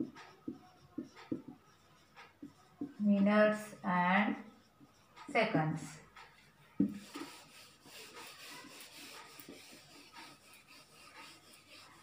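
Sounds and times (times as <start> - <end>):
duster scrubbing a whiteboard: 6.2 - 12.0.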